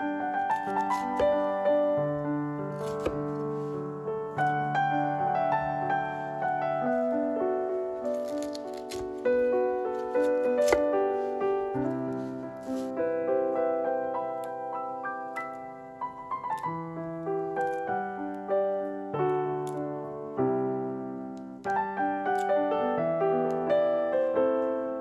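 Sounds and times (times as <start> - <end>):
piano music: 0.0 - 25.0.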